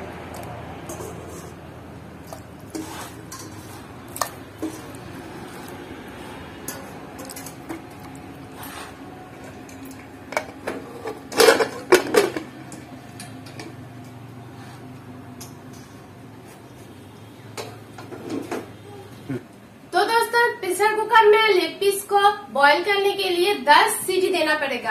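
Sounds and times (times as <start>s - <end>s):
metal pot and bowl clattering: 0.0s - 1.6s, 2.2s - 8.6s, 9.3s - 13.8s.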